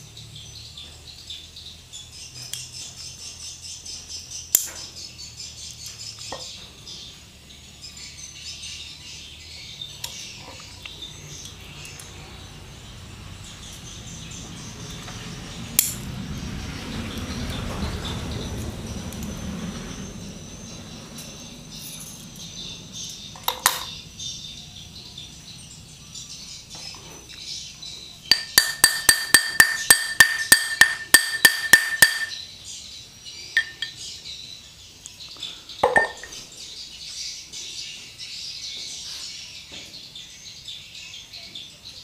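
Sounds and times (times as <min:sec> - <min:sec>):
metal bar tapping steel shaft: 0:28.3 - 0:32.4, 0:33.6 - 0:34.0
metal knocks: 0:28.3 - 0:32.4, 0:35.8 - 0:36.4.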